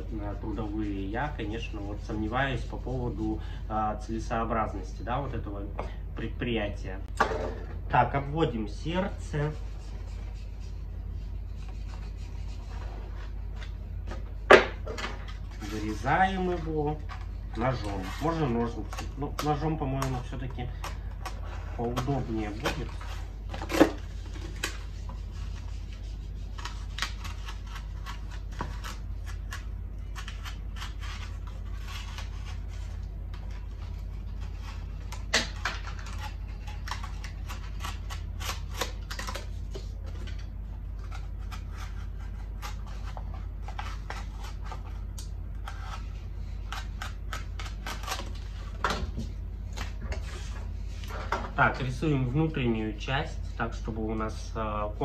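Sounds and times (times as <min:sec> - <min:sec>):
steady low hum: 0:00.0 - 0:55.0
knife cutting cardboard: 0:15.6 - 0:33.6, 0:34.3 - 0:39.7, 0:41.0 - 0:48.4.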